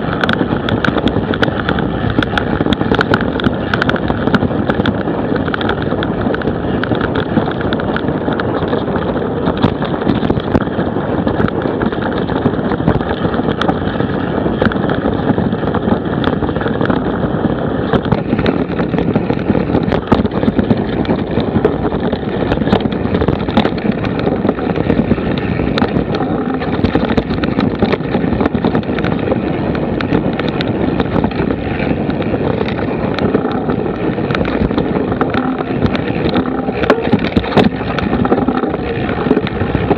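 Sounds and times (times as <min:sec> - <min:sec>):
bike tyre rumble and frame rattle: 0:00.0 - 0:39.9
wind buffeting microphone: 0:00.0 - 0:39.9.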